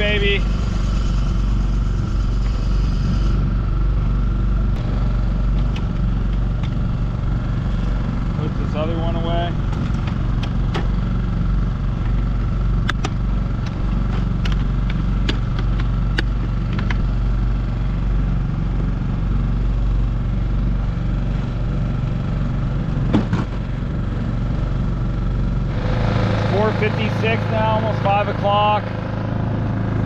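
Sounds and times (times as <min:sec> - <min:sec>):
outboard motor running: 0:00.0 - 0:30.0.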